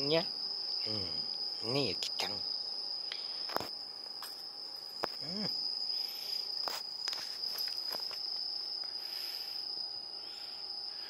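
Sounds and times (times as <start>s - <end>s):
crickets trilling: 0.0s - 11.0s.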